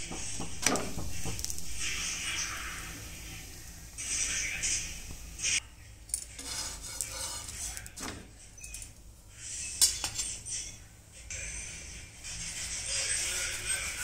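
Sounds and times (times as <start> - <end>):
utensils knocking on griddle pan: 0.0 - 1.5.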